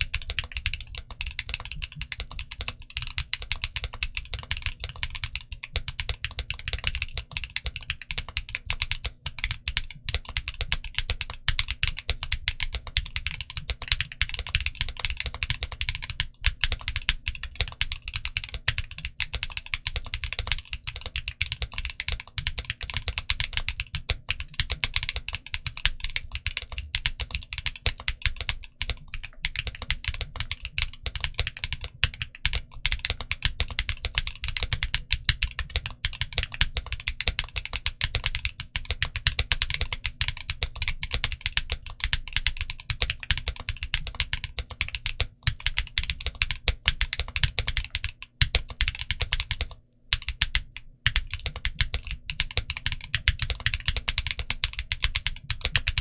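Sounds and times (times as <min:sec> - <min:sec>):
fast mechanical keyboard typing: 0:00.0 - 0:56.0.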